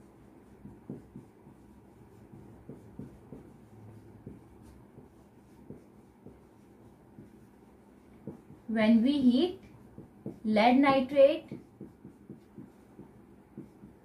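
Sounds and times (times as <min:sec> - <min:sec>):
marker writing on whiteboard: 0:00.0 - 0:14.0.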